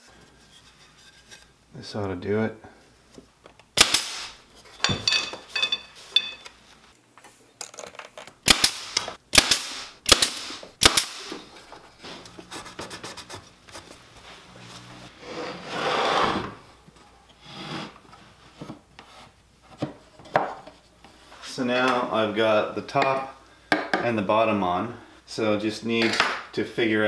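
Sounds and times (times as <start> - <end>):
nail gun shots: 3.8 - 4.4, 8.4 - 11.4.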